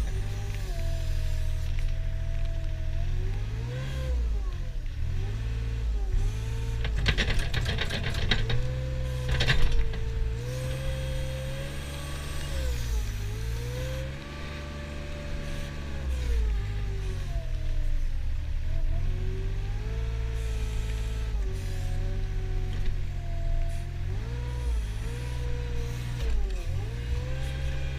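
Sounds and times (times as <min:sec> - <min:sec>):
hydraulic whine: 0:00.0 - 0:02.7, 0:06.1 - 0:18.1, 0:20.2 - 0:27.9
diesel engine working under load: 0:00.0 - 0:27.9
rattling clatter: 0:06.6 - 0:10.9.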